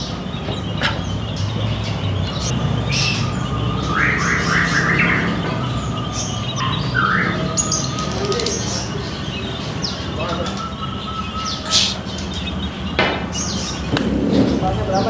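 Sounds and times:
caged birds chirping: 0.0s - 15.0s.

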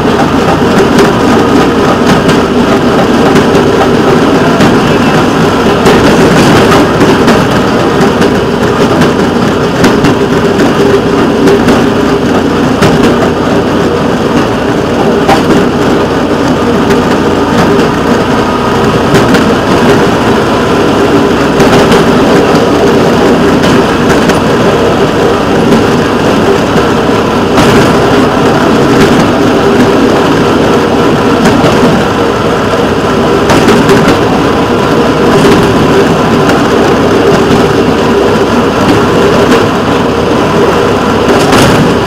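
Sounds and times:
rail vehicle engine droning: 0.0s - 42.0s
wheel-on-rail noise: 0.0s - 42.0s.

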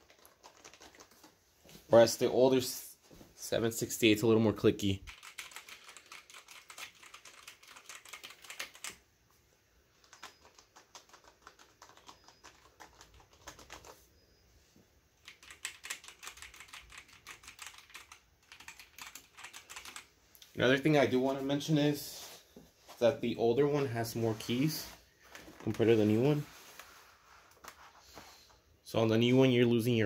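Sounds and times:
soft keystrokes: 10.0s - 14.0s.

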